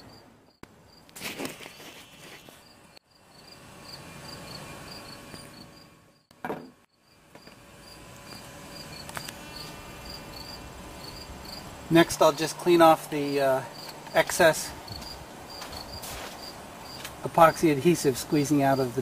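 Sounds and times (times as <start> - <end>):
cricket chirping: 0.0 - 6.3, 6.9 - 11.7, 14.9 - 17.6.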